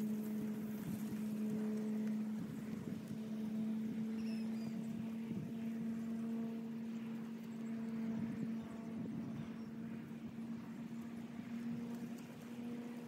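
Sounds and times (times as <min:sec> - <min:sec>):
steady mechanical motor hum: 0:00.0 - 0:13.0.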